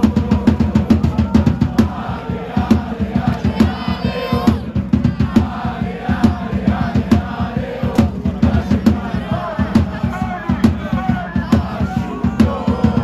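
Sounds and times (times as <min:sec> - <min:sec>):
crowd chanting: 0:00.0 - 0:13.0
drums beating: 0:00.0 - 0:13.0.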